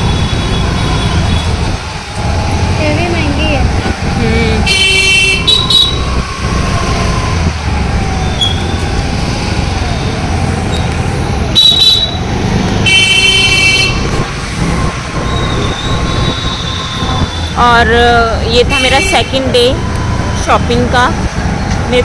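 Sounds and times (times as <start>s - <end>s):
busy street traffic: 0.0s - 22.0s
vehicle horns honking: 4.6s - 6.0s, 11.6s - 12.2s, 12.8s - 14.1s, 18.6s - 19.5s.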